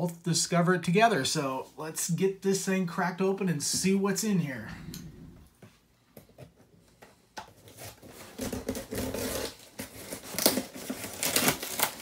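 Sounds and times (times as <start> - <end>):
scissors cutting packing tape: 7.8 - 12.0.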